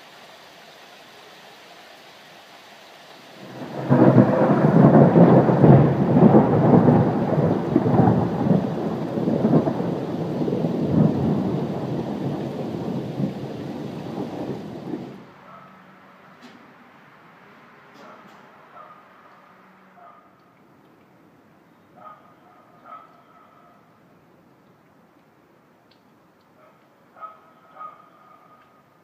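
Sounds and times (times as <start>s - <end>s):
thunder crack and rumble: 3.4s - 15.2s.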